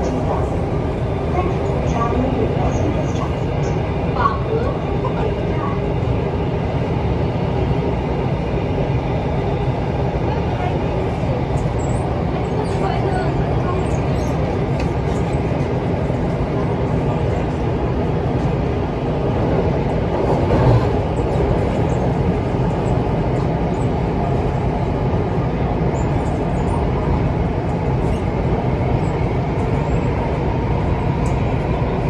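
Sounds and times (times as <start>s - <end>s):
metro train running interior: 0.0s - 32.0s.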